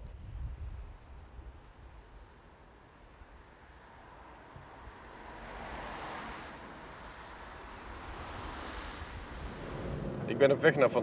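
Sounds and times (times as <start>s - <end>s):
car tyres hissing on wet road: 5.0s - 10.0s.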